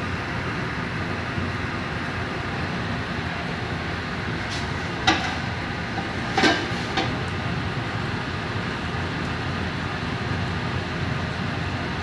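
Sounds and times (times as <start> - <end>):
kitchen rumble and hiss: 0.0 - 12.0
gas burner igniter clack: 4.5 - 7.4.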